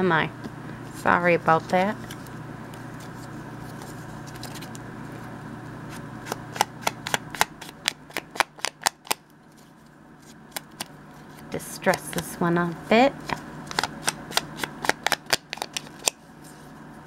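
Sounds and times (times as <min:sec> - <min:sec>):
paper rustling: 0:01.0 - 0:04.8.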